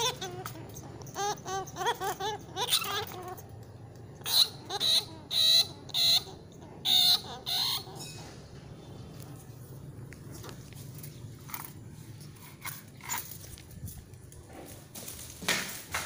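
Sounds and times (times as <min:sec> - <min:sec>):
rat squealing: 0:00.0 - 0:08.5.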